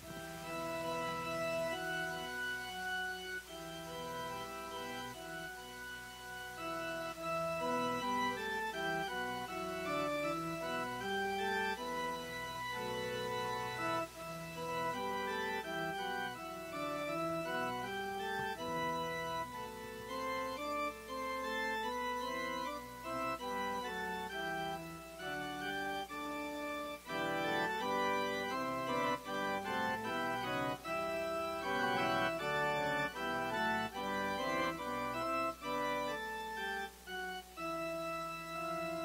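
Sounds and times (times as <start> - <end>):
organ playing chords: 0.0 - 39.0.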